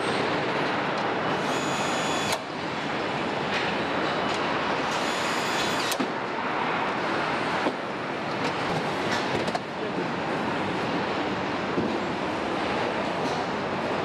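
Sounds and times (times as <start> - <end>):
cordless nutrunner whirring: 1.3 - 2.5, 4.8 - 6.1.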